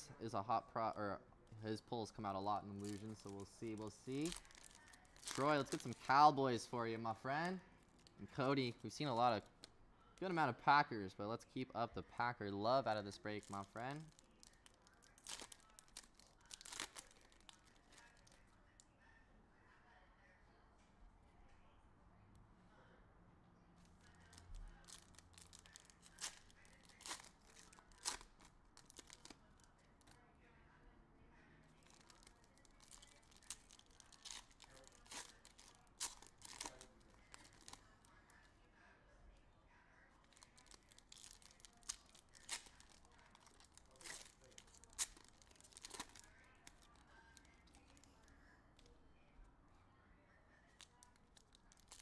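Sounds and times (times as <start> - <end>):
wrappers crinkling: 1.5 - 10.4, 12.6 - 18.4, 23.8 - 30.2, 31.8 - 38.5, 40.2 - 48.9, 50.6 - 52.0
cards being handled: 2.7 - 9.7, 12.6 - 14.4, 40.4 - 46.9.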